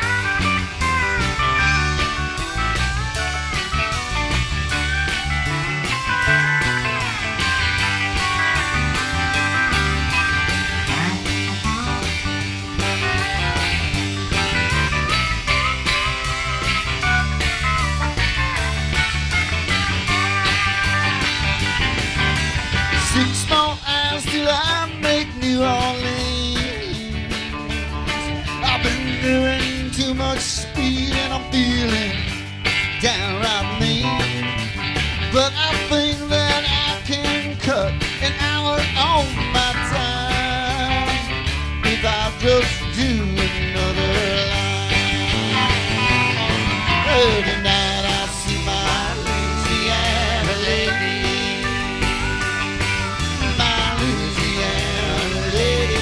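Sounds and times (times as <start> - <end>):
pedal steel guitar sliding: 0.0 - 23.7
country-rock band playing: 0.0 - 56.0.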